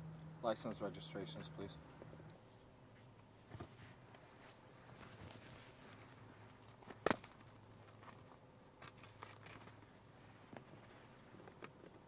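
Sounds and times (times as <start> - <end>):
low steady hum: 0.0 - 12.0
handling noise: 3.0 - 12.0.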